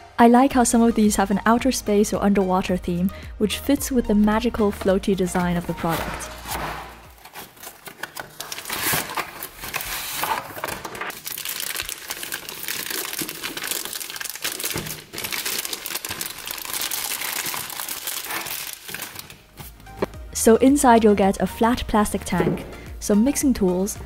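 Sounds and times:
plastic bag crinkling: 6.2 - 19.5.

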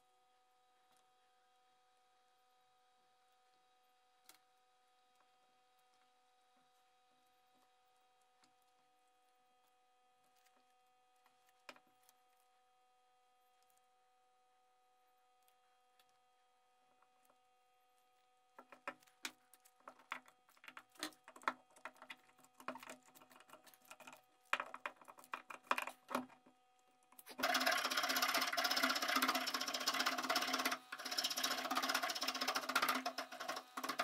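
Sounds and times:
hand file scraping wood: 27.3 - 34.0.

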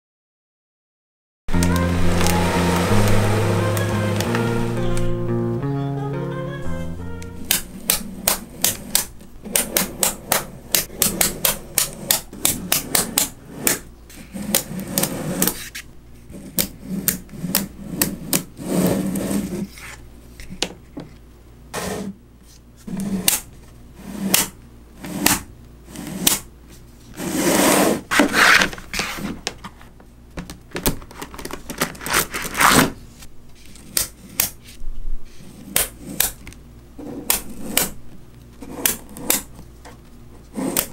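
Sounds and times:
magnet balls scraping on table: 11.6 - 20.0, 22.8 - 23.3, 24.0 - 24.4, 27.1 - 29.4, 37.0 - 38.0.

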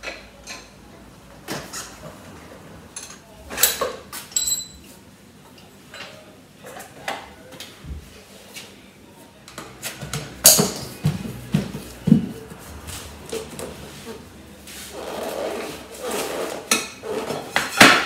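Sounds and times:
metallic clinks of hand tools: 4.3 - 4.8.

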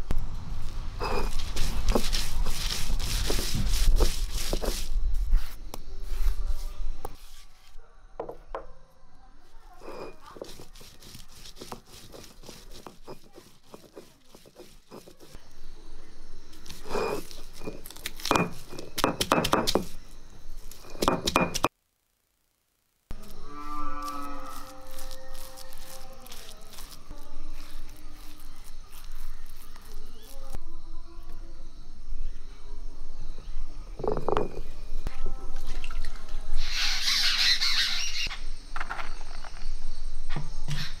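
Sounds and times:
stone roller scraping on stone slab: 1.0 - 7.5, 9.8 - 15.4, 16.6 - 20.0, 34.0 - 34.7
stone knocking on stone: 17.6 - 20.0, 20.8 - 21.7, 34.0 - 34.7.

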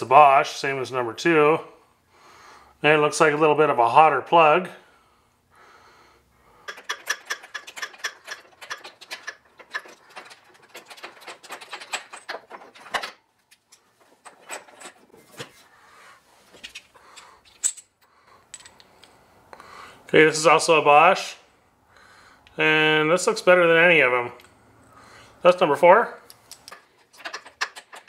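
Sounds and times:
ratchet wrench clicking: 6.7 - 12.2.

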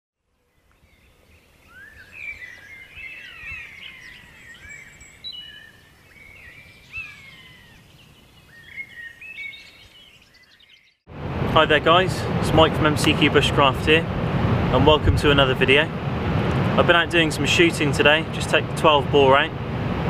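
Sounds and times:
birds singing and chirping: 0.4 - 11.0.

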